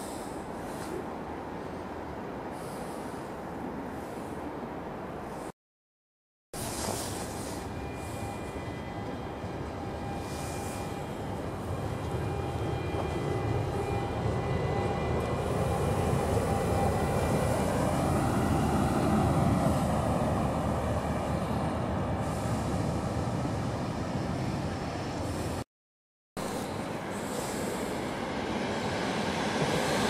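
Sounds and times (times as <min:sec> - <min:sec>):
train rolling past: 0:06.6 - 0:25.6, 0:26.4 - 0:30.0
faint whining tones: 0:07.2 - 0:17.3.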